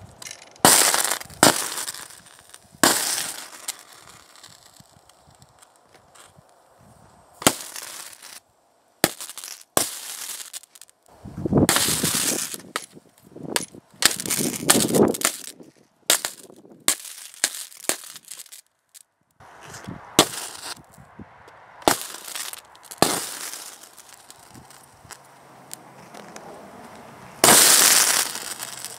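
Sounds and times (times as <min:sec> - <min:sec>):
electric arc cracking: 0:11.7 - 0:12.8, 0:14.0 - 0:18.7.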